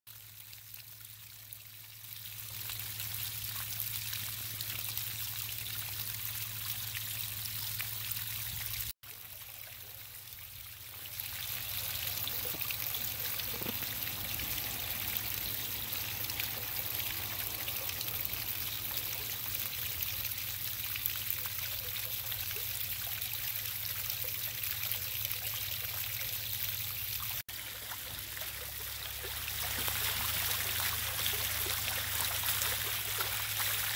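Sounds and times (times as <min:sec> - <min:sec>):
fountain water splashing: 0:00.1 - 0:33.9.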